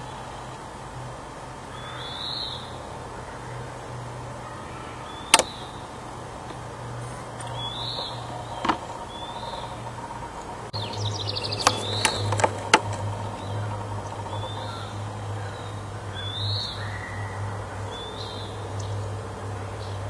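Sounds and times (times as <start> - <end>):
steady low hum: 0.0 - 20.0
bird whistling: 1.7 - 2.8, 4.7 - 5.9, 7.5 - 9.9, 10.8 - 12.4, 14.2 - 18.6
sharp clicks: 5.3 - 9.7.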